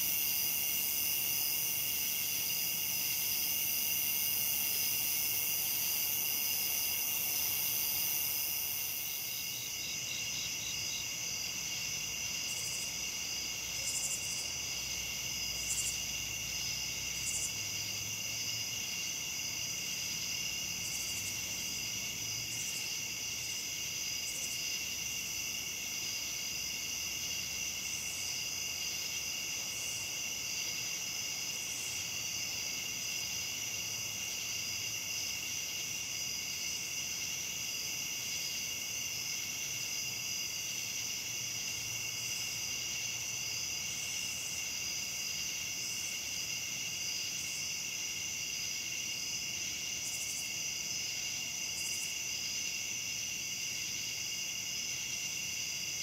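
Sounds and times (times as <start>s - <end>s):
crickets and katydids trilling: 0.0s - 56.0s
short high insect calls: 15.6s - 16.0s.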